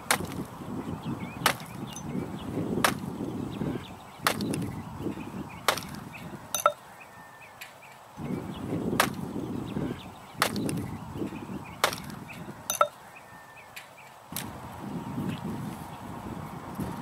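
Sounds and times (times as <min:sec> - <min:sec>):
hatchet chopping wood: 0:00.0 - 0:00.5, 0:01.4 - 0:02.1, 0:02.8 - 0:03.1, 0:04.2 - 0:04.7, 0:05.6 - 0:06.8, 0:09.0 - 0:09.3, 0:10.4 - 0:10.8, 0:11.8 - 0:13.0
split wood rustling: 0:00.0 - 0:00.6, 0:01.4 - 0:02.1, 0:02.8 - 0:03.1, 0:04.2 - 0:04.8, 0:05.6 - 0:06.8, 0:09.0 - 0:09.3, 0:10.4 - 0:10.9, 0:11.8 - 0:13.0.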